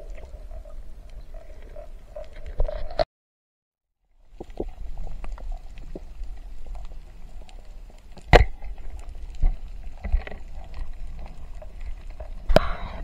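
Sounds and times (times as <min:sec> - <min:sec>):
underwater crackling clicks: 0:04.3 - 0:13.0.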